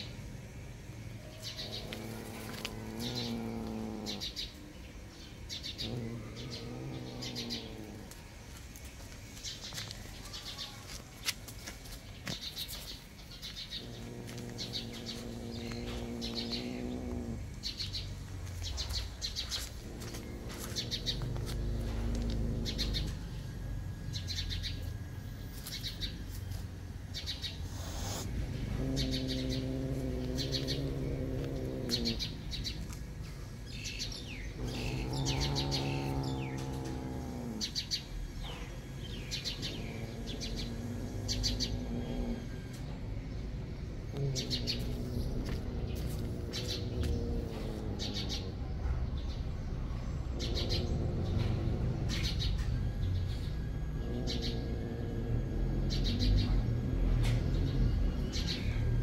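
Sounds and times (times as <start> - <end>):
small bird chirping: 12.0 - 25.0, 27.2 - 42.8.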